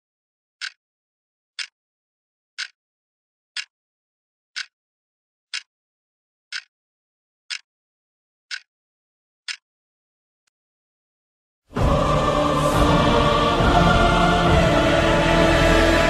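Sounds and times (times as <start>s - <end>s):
sharp ticks: 2.6s - 2.8s, 6.5s - 6.7s.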